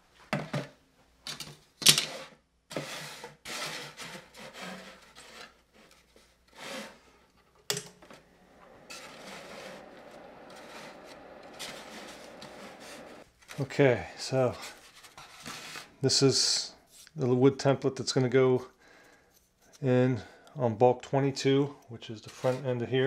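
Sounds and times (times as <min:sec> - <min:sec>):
foam scraping: 0:08.1 - 0:13.3
foam rubbing on table: 0:08.3 - 0:13.2.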